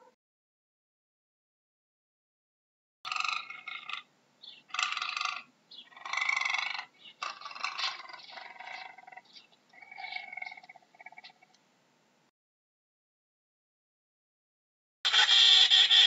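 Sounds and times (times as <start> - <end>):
animal calling: 3.1 - 11.6, 15.1 - 16.0.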